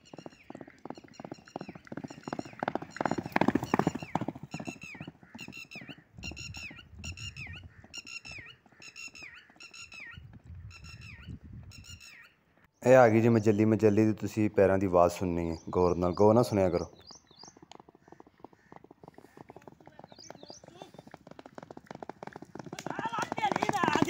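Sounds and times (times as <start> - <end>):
hoofbeats of galloping horse: 0.0 - 11.0, 17.0 - 24.0
bird calling: 0.0 - 12.9, 15.4 - 21.2.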